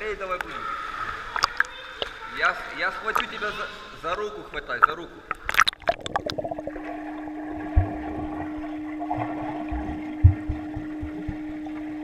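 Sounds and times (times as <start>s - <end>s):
dull low thumps underwater: 5.2s - 12.0s
muffled underwater hum: 6.0s - 12.0s.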